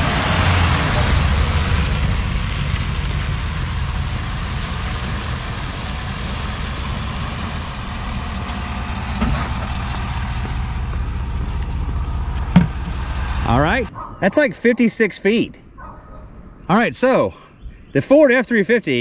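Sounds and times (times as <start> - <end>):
pickup truck engine rumbling: 0.0 - 14.3.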